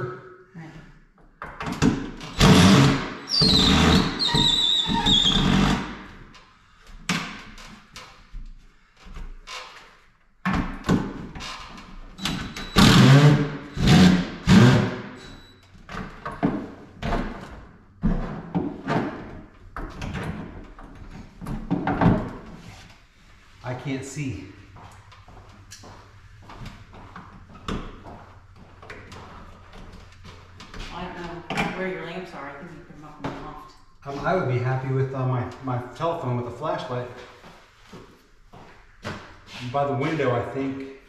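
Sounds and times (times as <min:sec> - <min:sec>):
wooden cabinets knocking and creaking: 0:01.4 - 0:05.8, 0:10.4 - 0:14.8, 0:15.8 - 0:22.6.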